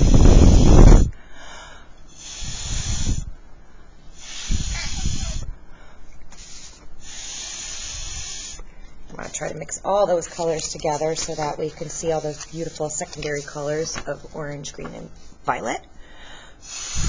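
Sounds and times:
air buffeting microphone: 0.0 - 1.2, 4.2 - 5.6
breath blown through a straw: 0.0 - 1.2, 2.1 - 3.4, 4.1 - 5.6, 6.3 - 8.7, 16.6 - 17.0.

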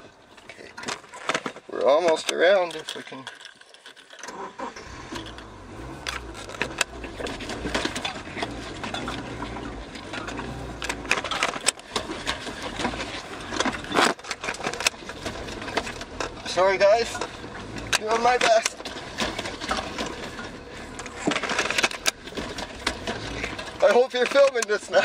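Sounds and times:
low engine drone: 4.6 - 23.8
car body rattles and knocks: 5.0 - 25.0.

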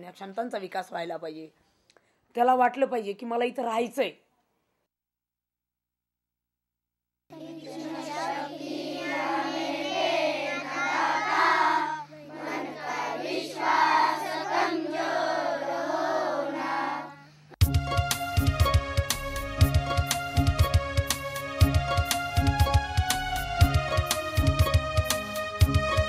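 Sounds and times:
children singing a prayer: 7.3 - 17.3
steady low hum: 7.3 - 17.6
instrumental music with sharp beats: 17.6 - 26.0.

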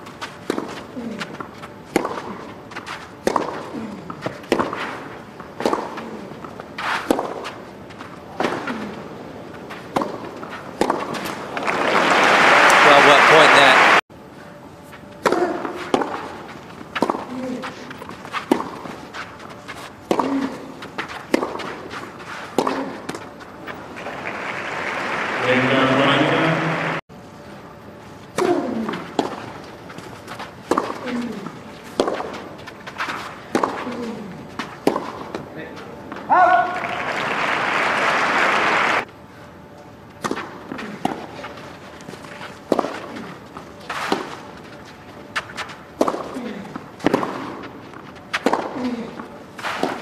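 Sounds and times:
racket striking tennis ball: 0.1 - 11.7, 15.1 - 23.8, 28.3 - 35.5, 40.2 - 50.0
crowd applause: 11.6 - 14.0, 24.0 - 27.0, 36.7 - 39.0
footstep scuffs on clay: 14.9 - 23.8.

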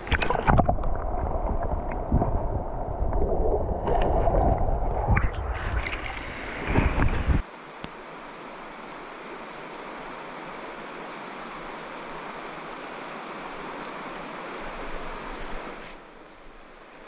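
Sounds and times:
water flowing over rocks: 0.0 - 16.0
low rumble: 0.1 - 7.4.

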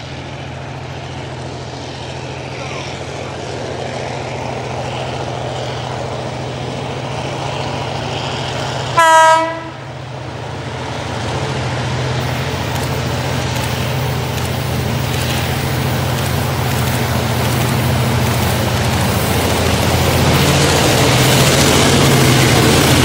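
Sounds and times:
diesel locomotive engine drone: 0.0 - 23.0
train horn blast: 9.0 - 10.0.

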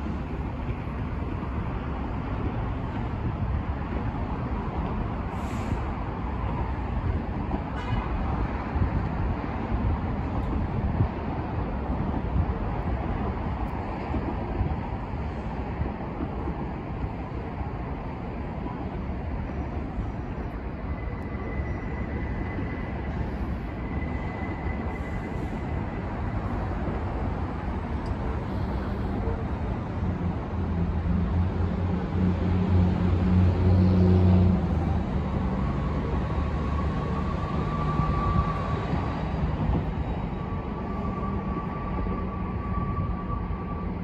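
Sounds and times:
distant train rumbling: 10.2 - 44.0
high wheel squeal: 20.0 - 26.2, 36.4 - 44.0.

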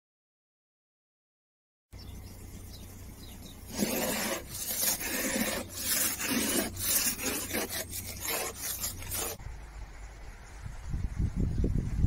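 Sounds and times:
rough scraping strokes: 3.5 - 9.4.

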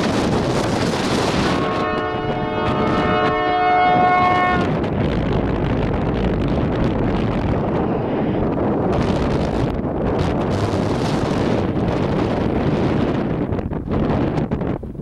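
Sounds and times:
wind rumbling on microphone: 0.0 - 15.0
locomotive air horn blast: 1.2 - 4.8.

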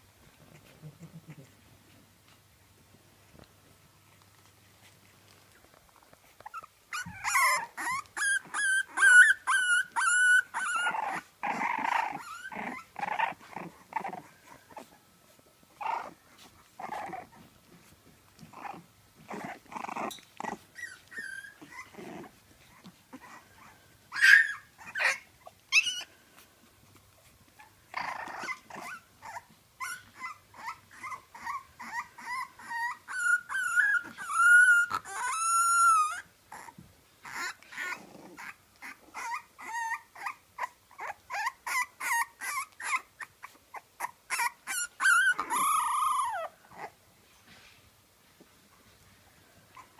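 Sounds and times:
puppies growling: 0.4 - 2.0, 5.6 - 15.0, 15.7 - 26.1, 27.2 - 47.0
puppies whining and squealing: 6.2 - 26.5, 27.2 - 47.0, 49.6 - 49.9
puppy yelps: 6.4 - 14.8, 19.3 - 22.0, 23.1 - 26.1, 27.6 - 47.0.

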